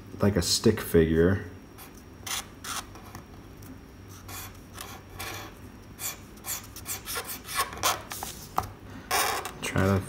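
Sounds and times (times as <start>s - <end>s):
marker scratching on paper: 4.1s - 8.4s.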